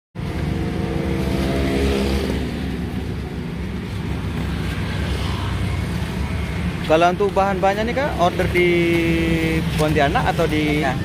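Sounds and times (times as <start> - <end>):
vehicle engine passing: 0.2 - 6.9
traffic rumble: 0.2 - 11.0.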